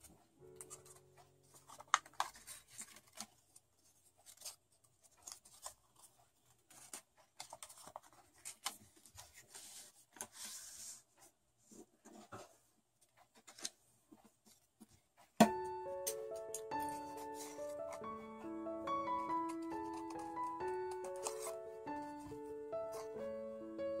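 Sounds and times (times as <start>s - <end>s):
paper rustling: 0.0s - 23.4s
paper sliding: 7.7s - 11.3s, 19.2s - 23.2s
paper tapping: 19.1s - 23.1s.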